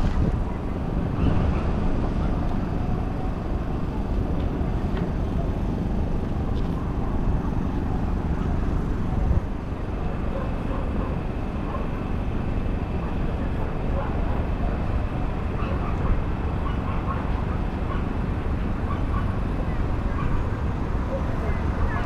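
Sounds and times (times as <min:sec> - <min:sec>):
low rumbling background noise: 0:00.0 - 0:22.0.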